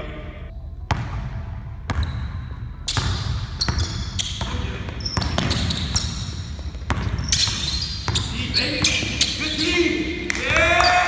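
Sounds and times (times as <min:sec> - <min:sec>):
sneaker squeaks: 0:01.9 - 0:10.1
basketball bouncing on wooden floor: 0:02.9 - 0:09.4.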